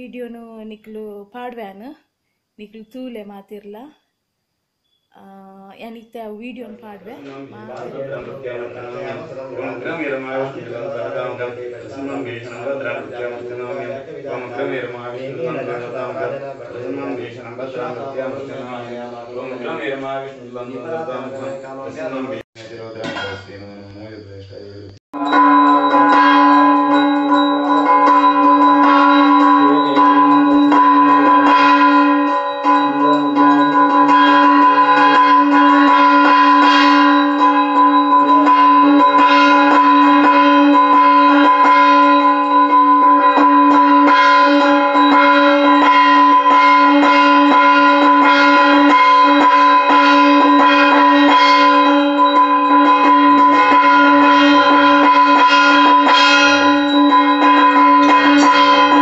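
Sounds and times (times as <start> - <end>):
hand bell ringing: 25.2 - 59.0.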